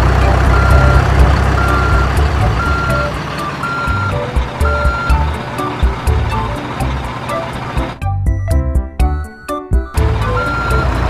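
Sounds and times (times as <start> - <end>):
truck engine rumble: 0.0 - 11.0
truck reversing alarm beeping: 0.0 - 11.0.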